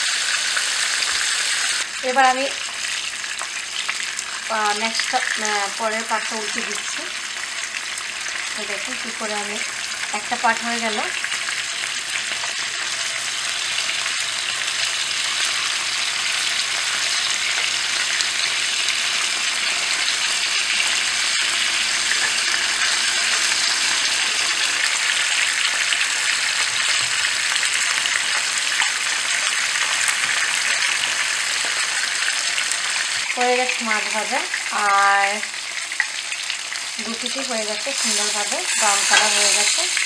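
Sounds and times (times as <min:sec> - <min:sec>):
fish sizzling in oil: 0:00.0 - 0:40.0
wooden spatula turning fish: 0:37.9 - 0:40.0.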